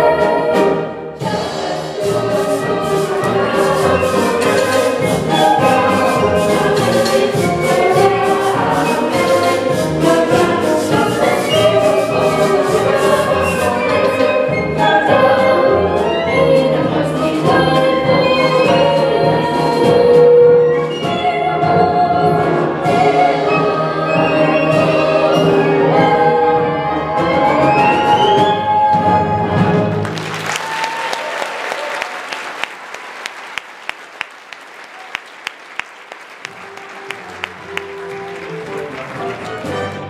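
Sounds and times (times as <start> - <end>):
cast singing: 0.0 - 28.6
live orchestra playing: 0.0 - 30.6, 36.0 - 40.0
audience applause: 30.0 - 40.0.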